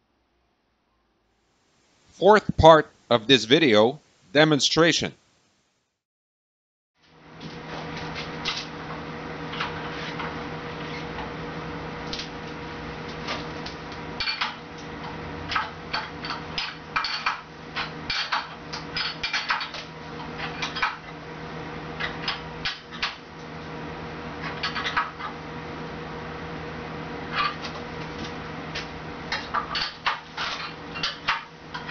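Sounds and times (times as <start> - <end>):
steady hum: 0.0 - 6.0.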